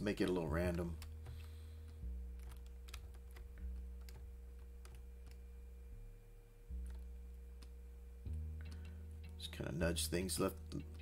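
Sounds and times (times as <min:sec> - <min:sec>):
low steady hum: 0:00.0 - 0:11.0
keyboard and mouse clicks: 0:00.2 - 0:05.4, 0:06.8 - 0:09.4.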